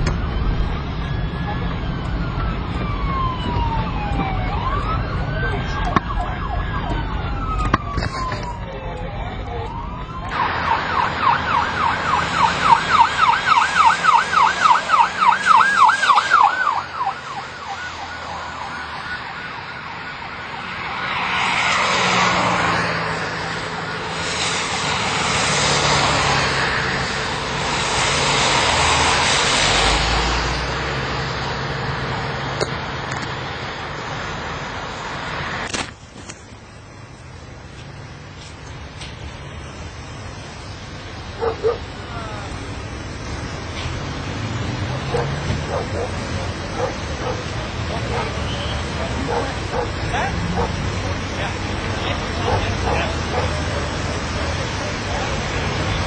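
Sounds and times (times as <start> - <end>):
police siren wailing: 0.0 - 32.8, 39.4 - 56.0
passing vehicles: 0.0 - 56.0
police siren fast yelp: 0.1 - 27.1, 41.3 - 42.6, 45.0 - 55.4.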